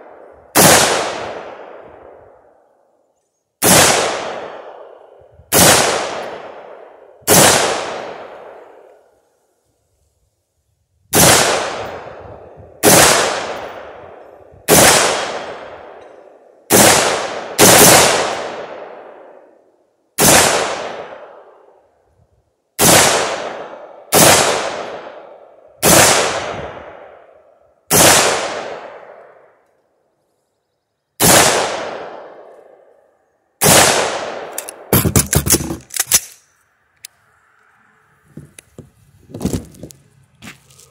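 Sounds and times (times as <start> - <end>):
rifle shots with rolling echo: 0.0 - 3.0, 3.6 - 9.2, 11.1 - 22.0, 22.8 - 29.6, 31.2 - 36.4.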